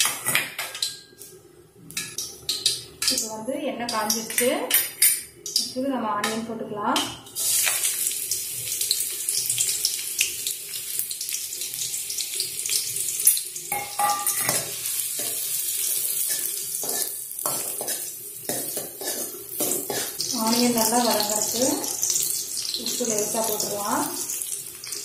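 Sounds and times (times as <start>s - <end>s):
onions sizzling in hot oil: 7.3s - 25.0s
spoon scraping a pan: 13.3s - 20.3s.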